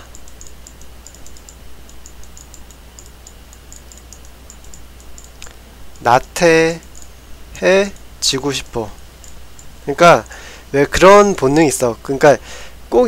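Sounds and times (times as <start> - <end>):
input device clicks: 0.0 - 7.2, 7.8 - 9.8
steady low hum: 0.0 - 13.0.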